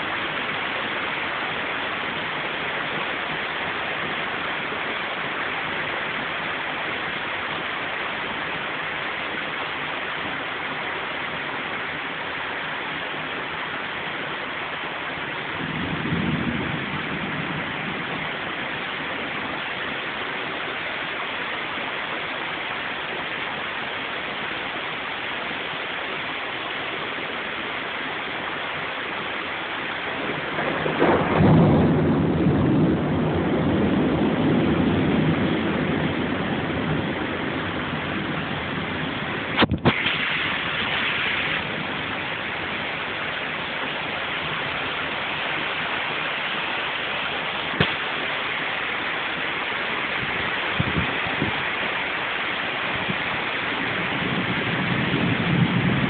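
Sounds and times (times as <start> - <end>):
heavy rain pouring: 0.0 - 56.0
low rumble: 15.4 - 19.6.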